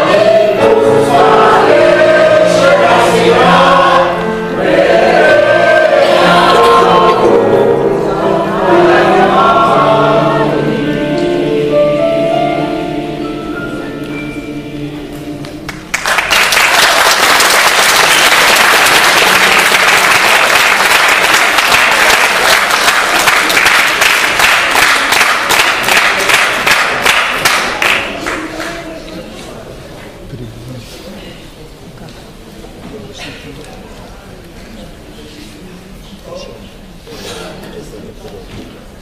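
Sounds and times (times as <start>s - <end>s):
choir with piano: 0.0s - 16.0s
audience applause: 15.7s - 28.9s.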